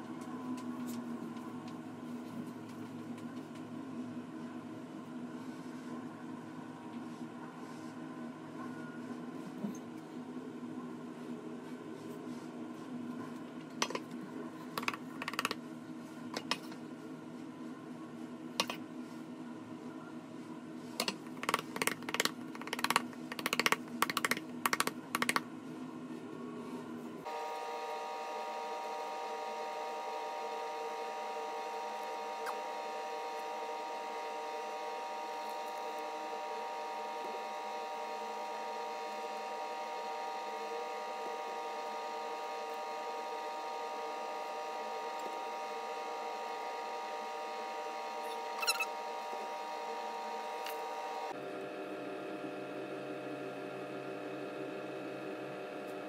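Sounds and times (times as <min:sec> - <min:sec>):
steady low hum: 0:00.0 - 0:56.0
hum with several pitches: 0:26.3 - 0:56.0.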